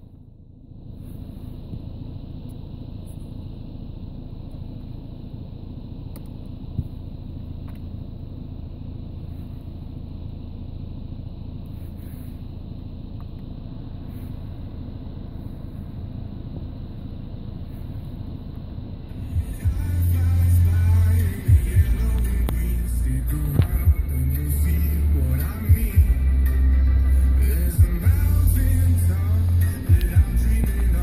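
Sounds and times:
car engine running: 0:00.0 - 0:31.0.

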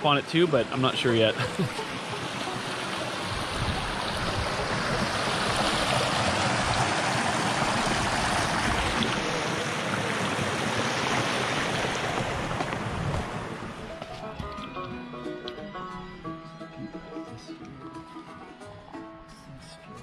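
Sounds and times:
creek flowing over stones: 0:00.0 - 0:14.3.

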